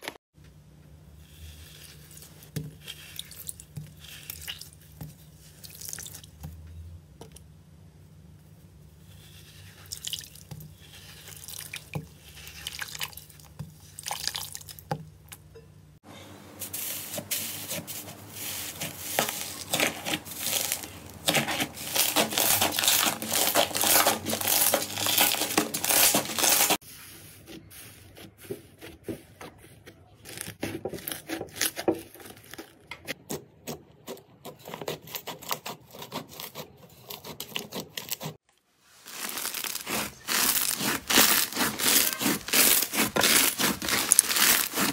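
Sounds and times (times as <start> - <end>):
slime squishing and crackling: 18.7 - 26.8, 38.9 - 44.9.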